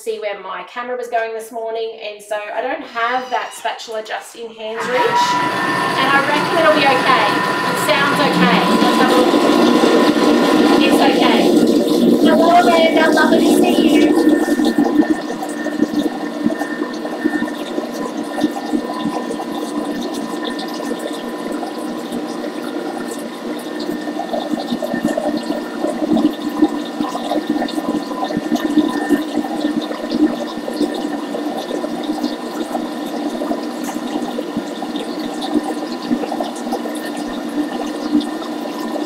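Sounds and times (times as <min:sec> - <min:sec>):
faint motor whine: 0:04.8 - 0:39.0
food processor churning batter: 0:04.8 - 0:39.0.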